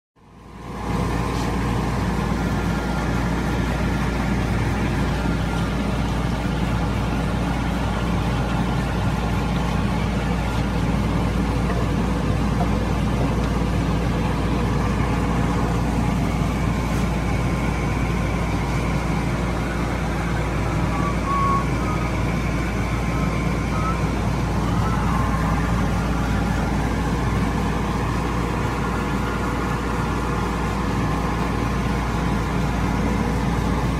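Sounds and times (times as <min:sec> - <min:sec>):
high machine whine: 0:00.2 - 0:33.9.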